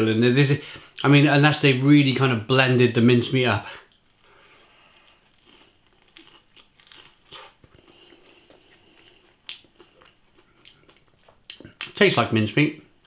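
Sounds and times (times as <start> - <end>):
crunching crispy food: 4.0 - 11.7.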